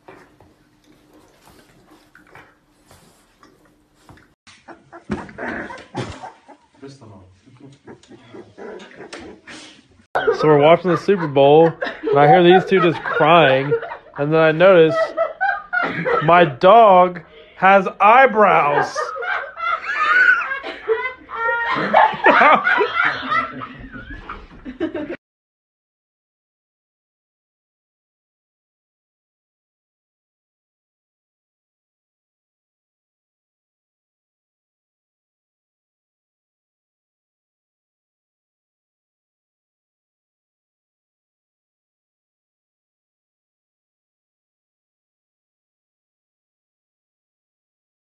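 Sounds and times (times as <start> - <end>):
puppies rustling and scuffling: 0.0 - 10.0
people laughing: 5.2 - 25.2.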